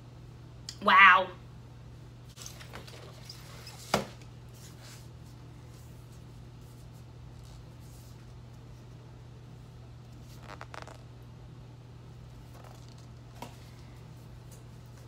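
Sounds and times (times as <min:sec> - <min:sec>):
soft paper rustling: 0:04.5 - 0:09.0, 0:12.3 - 0:13.9.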